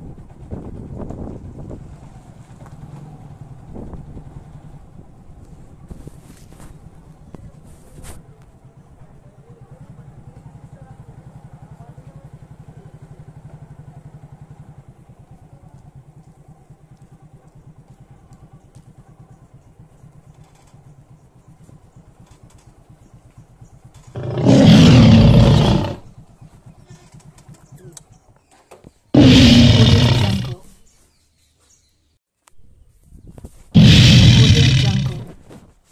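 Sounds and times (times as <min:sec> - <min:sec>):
small vehicle engine running: 0:00.0 - 0:05.8, 0:08.5 - 0:28.3
loud rush of noise: 0:29.2 - 0:30.6, 0:33.8 - 0:35.3.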